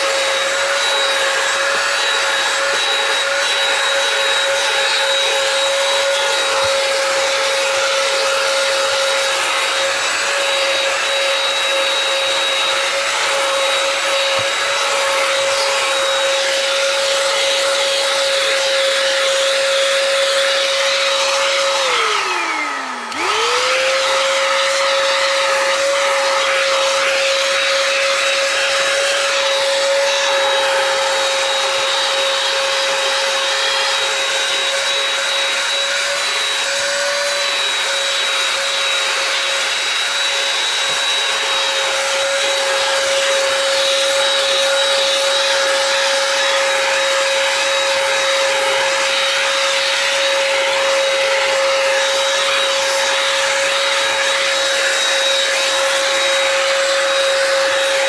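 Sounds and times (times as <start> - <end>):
handheld vacuum cleaner running: 0.0 - 58.0.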